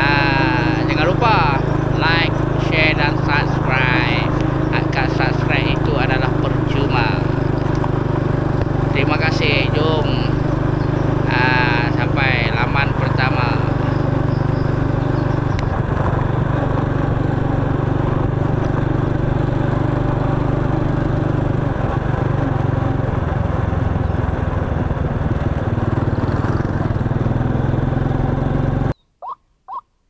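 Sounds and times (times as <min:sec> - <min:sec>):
motorcycle engine running: 0:00.0 - 0:29.0
bird calling: 0:08.5 - 0:16.0, 0:28.9 - 0:29.9.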